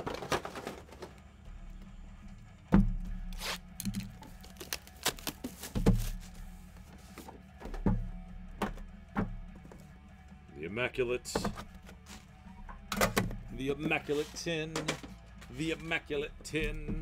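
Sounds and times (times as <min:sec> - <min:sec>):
boxes thudding on a table: 0:05.4 - 0:06.2.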